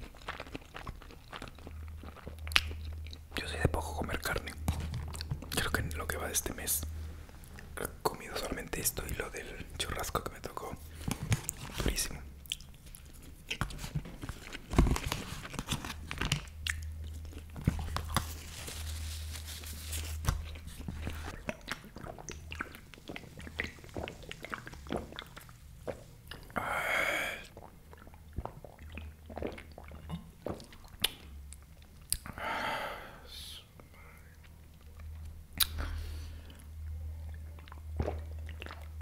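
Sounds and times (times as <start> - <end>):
chewing and crunching: 0.0 - 3.5, 4.2 - 6.2, 8.9 - 26.6, 27.5 - 32.3, 34.3 - 39.0
low steady hum: 0.0 - 39.0
person swallowing soda: 20.3 - 31.3, 37.6 - 39.0.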